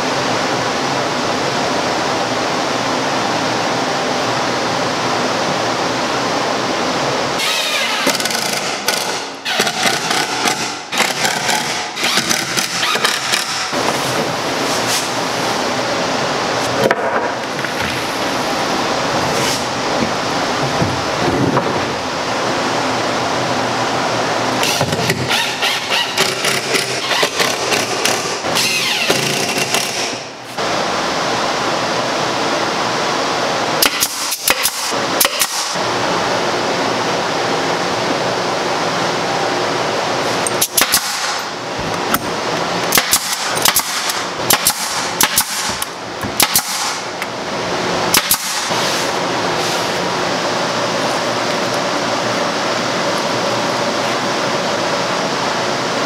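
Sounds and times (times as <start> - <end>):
steady noisy background: 0.0 - 56.0
nail gun shots: 8.0 - 13.7, 33.8 - 35.8, 40.6 - 41.5, 42.9 - 47.0, 48.1 - 48.7.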